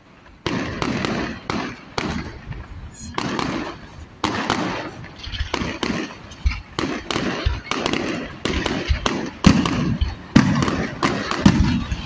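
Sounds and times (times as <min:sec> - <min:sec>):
fireworks bursting with sharp bangs: 0:00.0 - 0:12.0.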